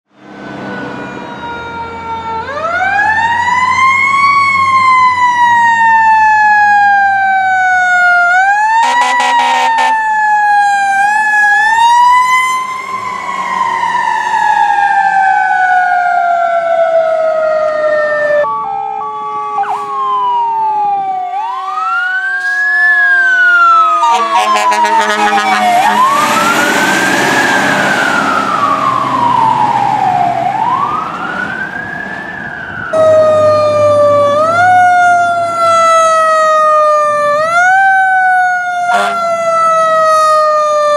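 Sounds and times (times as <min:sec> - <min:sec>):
fire truck sirens wailing: 0:00.1 - 0:40.9
truck engine noise: 0:00.1 - 0:40.9
short horn blasts: 0:08.8 - 0:10.0, 0:24.0 - 0:26.3, 0:38.9 - 0:39.2.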